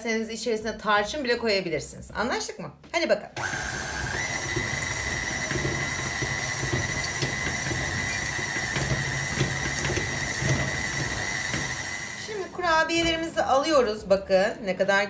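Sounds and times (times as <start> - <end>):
stand mixer motor whine: 3.4 - 12.5
dough churning in steel bowl: 3.4 - 13.4.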